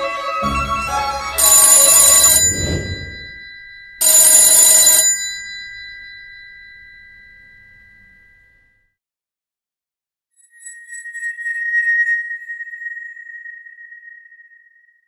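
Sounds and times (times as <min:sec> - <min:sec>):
telephone bell ringing: 0:01.4 - 0:08.3.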